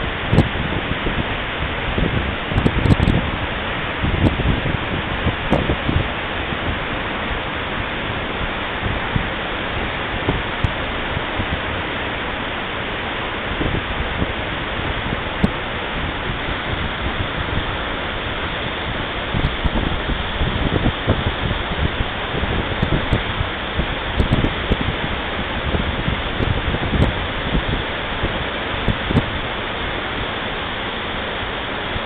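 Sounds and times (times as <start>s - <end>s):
waterfall rushing: 0.0s - 32.0s.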